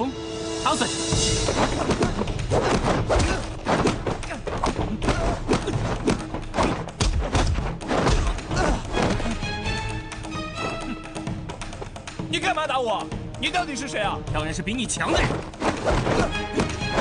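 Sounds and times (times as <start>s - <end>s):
punch and kick thuds: 1.6s - 9.2s.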